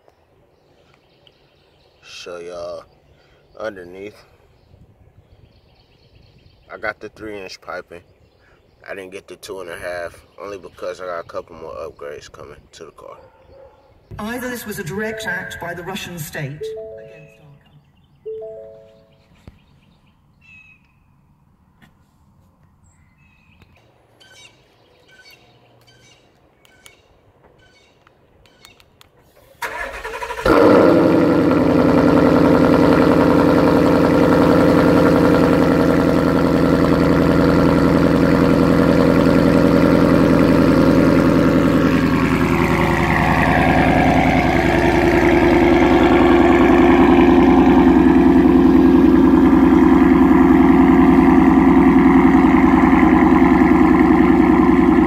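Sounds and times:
car engine starting and idling: 29.4s - 55.0s.

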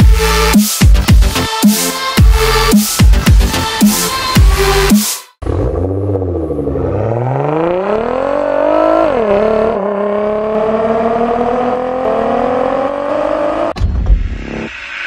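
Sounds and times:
car engine accelerating hard: 5.4s - 13.8s.

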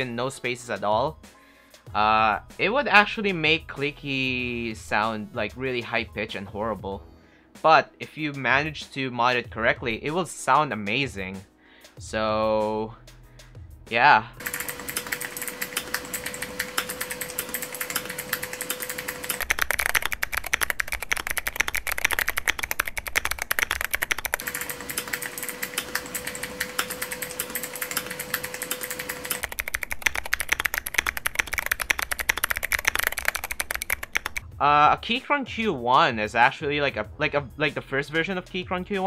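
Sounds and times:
mechanical keyboard typing: 14.4s - 34.5s.

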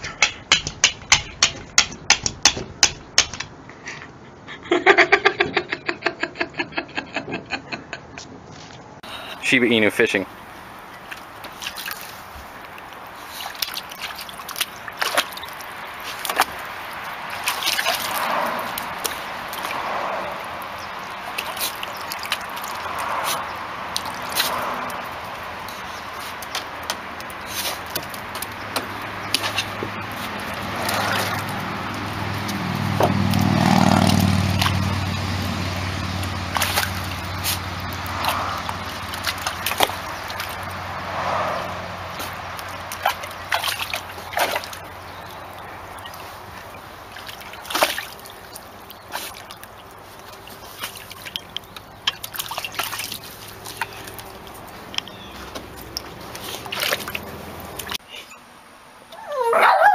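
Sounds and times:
sharp water splashes: 9.0s - 58.1s
shallow water sloshing: 10.3s - 58.0s.

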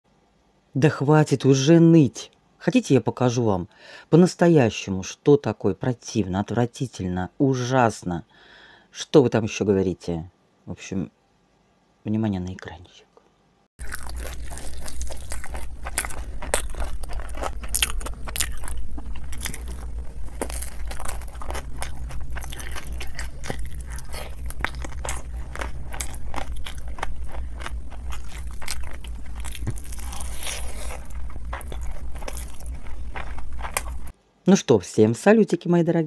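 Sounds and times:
steady low hum: 6.3s - 34.4s
person chewing: 13.8s - 34.1s.

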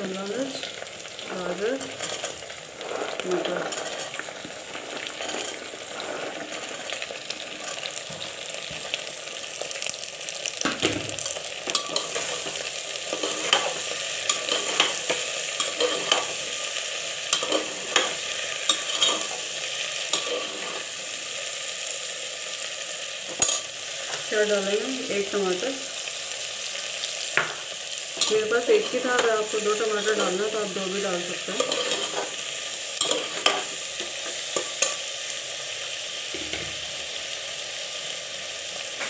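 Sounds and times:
vegetables sizzling in oil: 0.0s - 39.0s
ladle scraping and clinking pot: 2.0s - 4.2s, 4.8s - 6.9s, 11.7s - 16.4s, 17.3s - 19.5s, 20.2s - 20.9s, 23.3s - 23.7s, 31.6s - 32.4s, 33.0s - 35.0s.

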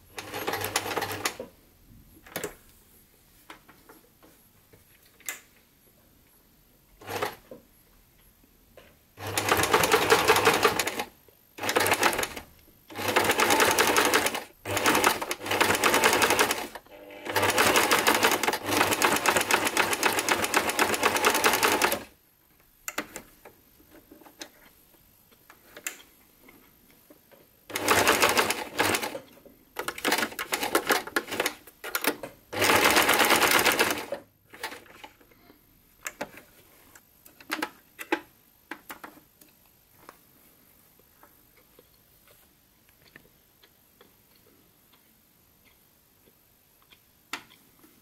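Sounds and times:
sewing machine stitching: 0.2s - 1.4s, 9.2s - 22.1s, 27.7s - 29.2s, 29.8s - 35.1s.

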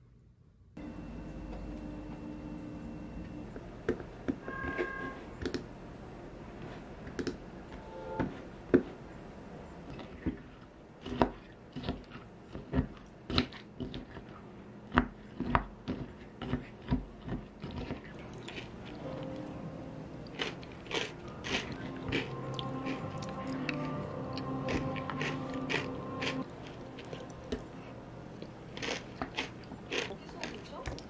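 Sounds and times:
granola crunching: 9.9s - 19.5s, 20.2s - 27.7s, 28.3s - 31.0s.

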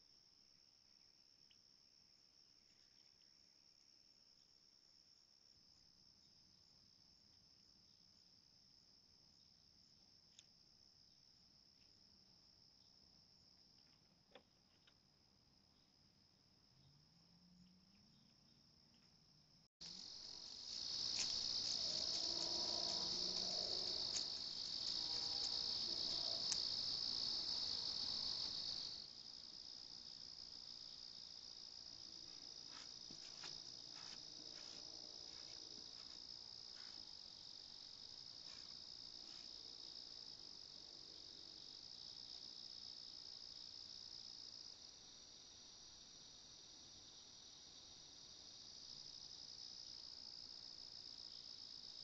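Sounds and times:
crickets trilling: 19.8s - 52.0s.

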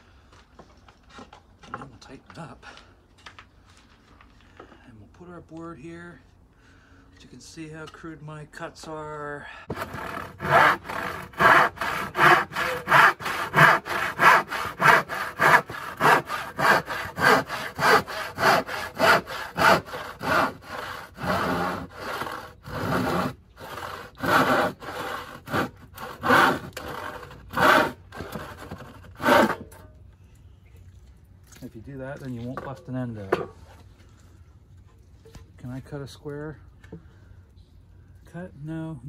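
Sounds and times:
hand saw cutting wood: 9.7s - 29.8s.

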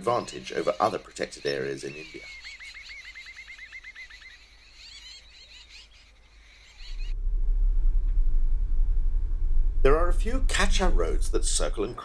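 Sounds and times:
small bird chirping: 0.2s - 7.2s
vehicle rumbling on dirt track: 6.9s - 11.8s.

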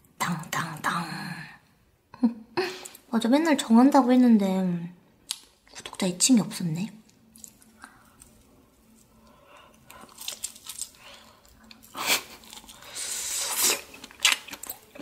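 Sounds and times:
crunchy tearing bite: 9.8s - 15.0s.

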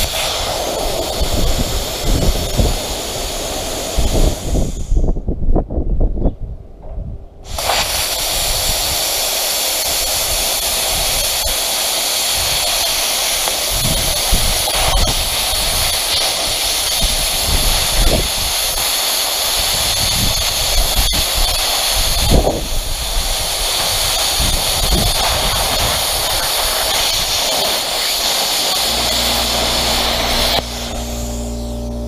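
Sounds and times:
plasma cutter air and arc rush: 0.0s - 5.0s, 7.4s - 32.0s.

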